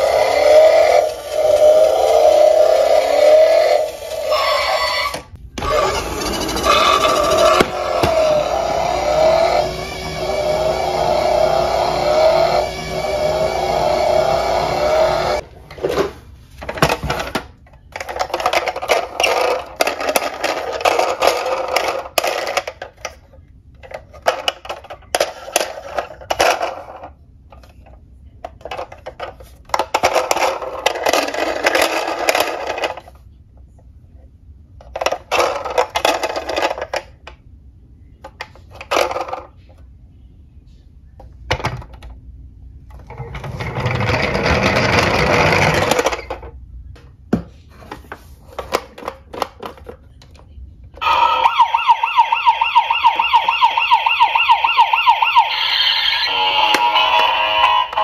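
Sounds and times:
toy car wheels rolling: 0:00.0 - 0:13.9, 0:17.9 - 0:23.2, 0:28.6 - 0:33.2, 0:43.0 - 0:46.6
plastic handling clatter: 0:47.3 - 0:50.5
toy siren warbling: 0:51.0 - 0:58.0.

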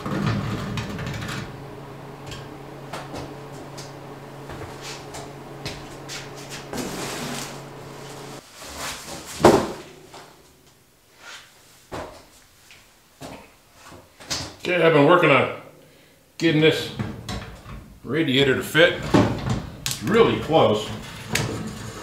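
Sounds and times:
steady low hum: 0:00.0 - 0:11.9.

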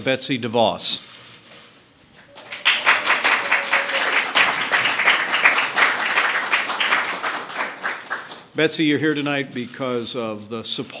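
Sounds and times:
audience applauding: 0:02.3 - 0:08.5.

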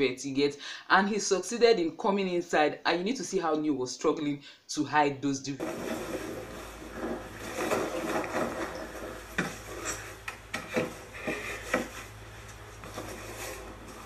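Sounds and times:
wooden slats rubbing and scraping: 0:05.6 - 0:14.0.

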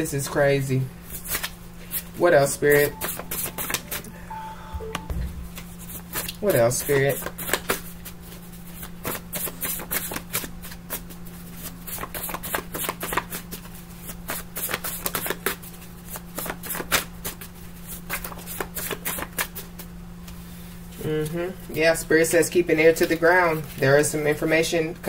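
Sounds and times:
faint low hum: 0:02.2 - 0:06.9
cards being shuffled: 0:08.7 - 0:19.6.

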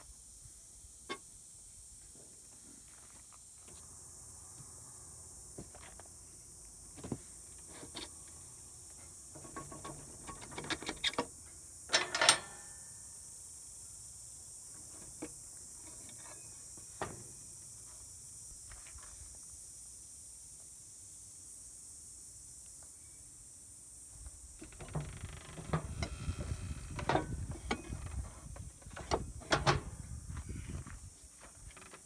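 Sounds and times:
steady high hiss: 0:00.0 - 0:31.9
hand tools clicking and clanking: 0:09.4 - 0:11.3, 0:11.9 - 0:12.8.

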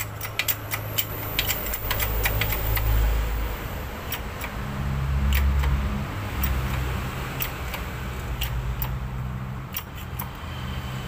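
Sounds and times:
sharp light clicks: 0:00.0 - 0:03.0, 0:06.4 - 0:09.0.

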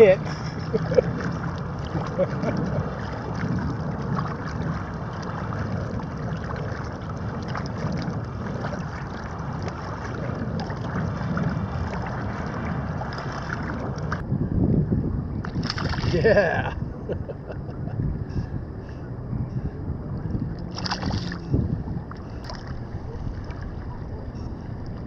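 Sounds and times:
small waves lapping: 0:00.0 - 0:14.2, 0:15.5 - 0:16.4, 0:20.5 - 0:25.0
wind buffeting microphone: 0:00.0 - 0:25.0.

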